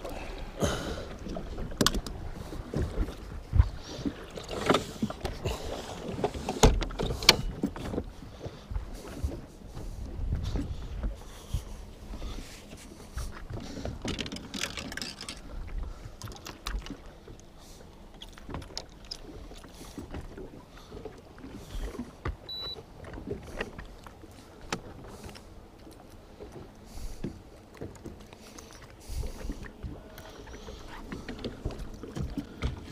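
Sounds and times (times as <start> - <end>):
water slapping against boat hull: 0.0 - 32.9
brief high beep: 22.5 - 22.8.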